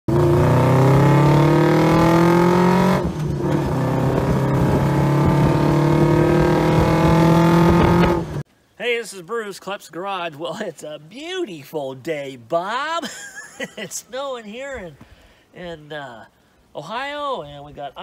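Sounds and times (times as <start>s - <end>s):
car engine accelerating: 0.1s - 8.4s.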